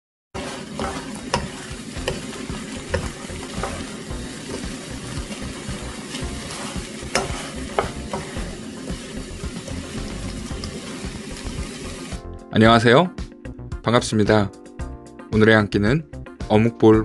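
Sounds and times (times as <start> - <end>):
wooden spatula stirring: 0.4 - 12.1
food sizzling in a pan: 0.4 - 12.3
spatula knocking against pan: 0.8 - 5.8, 6.4 - 8.5.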